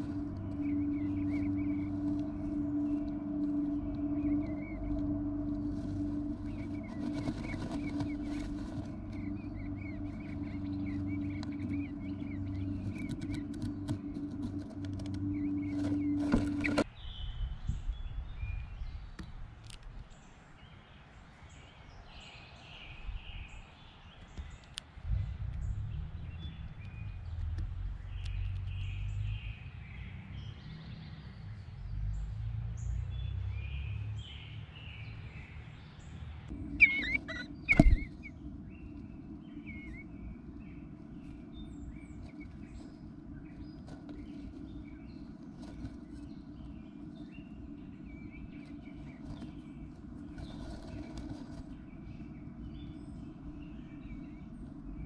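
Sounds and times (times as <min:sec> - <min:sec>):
faint chirps: 0:00.0 - 0:16.9, 0:36.5 - 0:55.0
steady electrical hum: 0:00.0 - 0:16.9, 0:36.5 - 0:55.0
low outdoor rumble: 0:00.0 - 0:20.5, 0:22.8 - 0:55.0
small birds calling: 0:00.0 - 0:55.0
loud knocks in nest box: 0:37.7 - 0:38.1.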